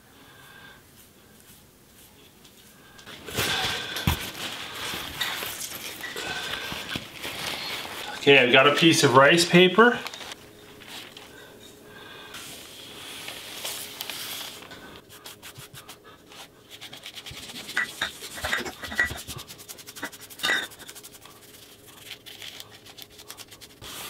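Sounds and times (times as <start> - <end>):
fingers rubbing paper: 19.2 - 24.0.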